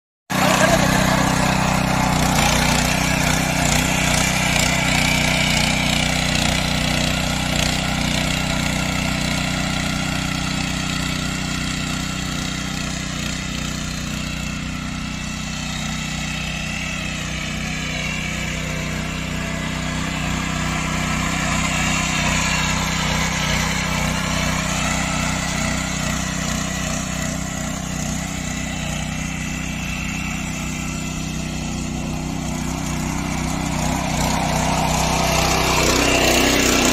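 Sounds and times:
small engine running: 0.3s - 36.9s
tiller working soil: 0.3s - 36.9s.

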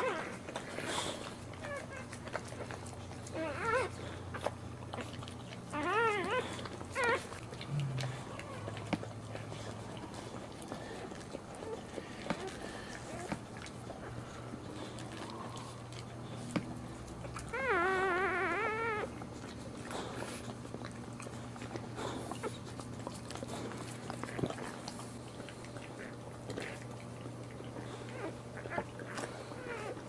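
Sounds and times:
puppy crying: 0.0s - 13.3s, 17.2s - 19.2s, 27.7s - 30.0s
low steady hum: 0.0s - 30.0s.

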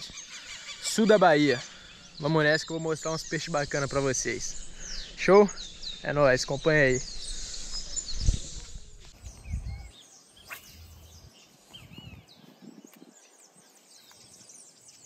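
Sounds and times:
small birds chirping: 0.0s - 15.0s
low rumbling on microphone: 6.6s - 9.9s.

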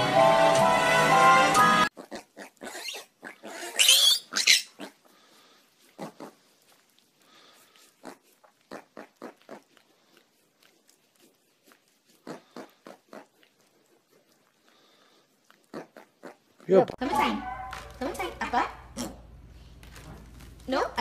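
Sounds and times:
song: 0.0s - 1.9s
piglet grunting: 1.9s - 5.3s, 5.9s - 6.5s, 7.8s - 19.5s
piglet squealing: 2.0s - 5.0s.

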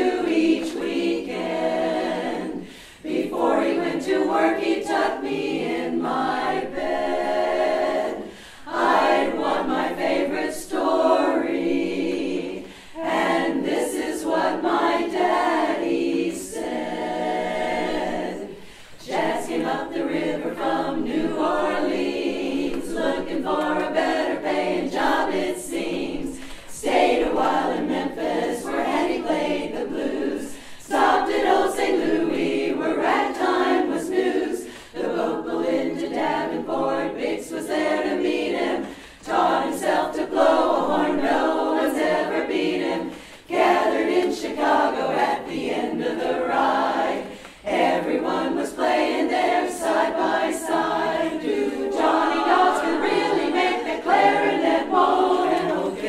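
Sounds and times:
women's chorus singing a cappella: 0.0s - 56.0s.

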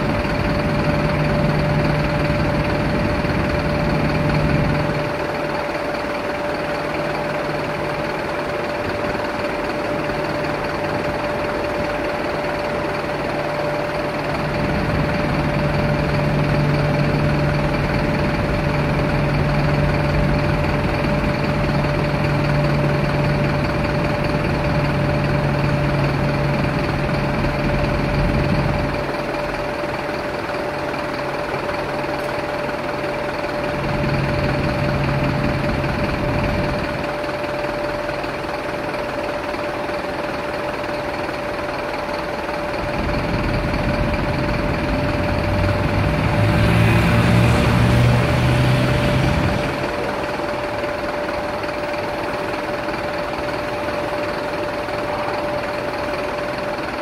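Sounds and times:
vehicle engines driving past: 44.6s - 51.2s.

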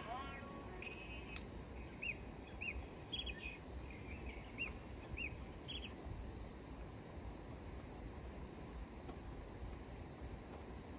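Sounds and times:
bird chirping: 0.0s - 6.0s
high insect drone: 0.0s - 10.9s.

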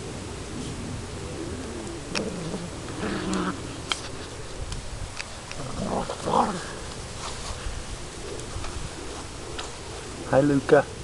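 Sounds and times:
puppies growling and yipping: 0.6s - 4.6s, 5.3s - 6.9s.

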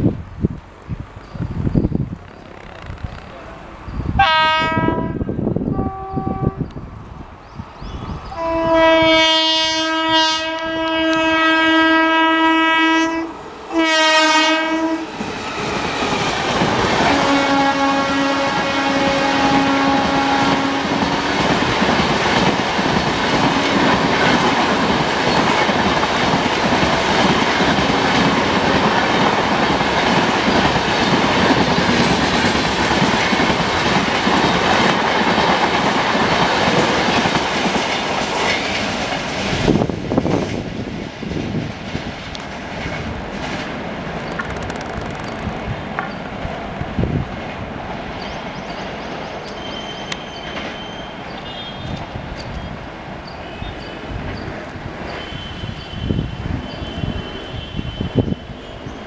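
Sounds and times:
locomotive horn blasts: 4.2s - 6.7s, 8.3s - 15.0s, 17.0s - 20.9s
train wheel clatter: 20.0s - 57.1s.

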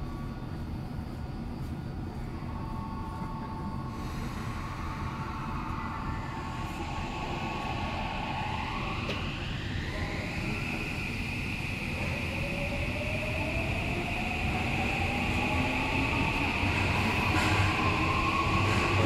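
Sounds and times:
train wheels and motors rumbling: 0.4s - 19.0s.

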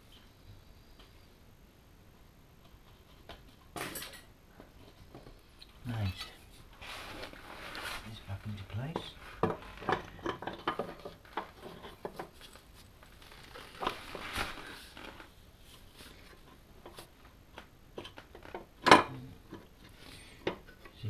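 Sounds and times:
rustling scrape: 6.2s - 10.2s, 11.0s - 17.1s
light clicks and knocks of parts: 8.3s - 14.0s.

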